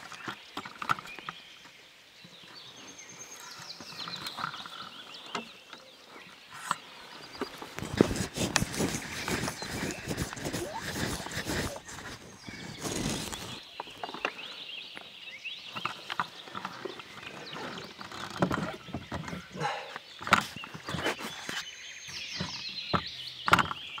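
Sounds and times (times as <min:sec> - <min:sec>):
birdsong chirps and whistles: 0:00.0 - 0:24.0
rustling against camera: 0:06.5 - 0:14.1, 0:15.8 - 0:22.7.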